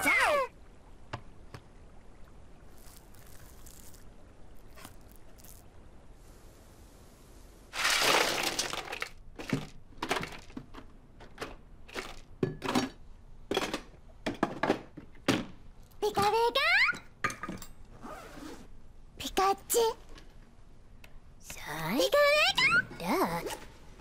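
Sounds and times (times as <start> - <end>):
crushed ice crunching and rattling: 7.8 - 10.5
clinks and knocks of containers: 7.8 - 17.8.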